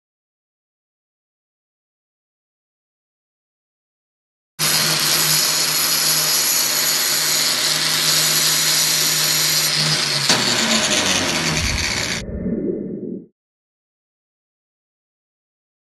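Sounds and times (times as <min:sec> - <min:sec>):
angle grinder grinding: 0:04.6 - 0:12.2.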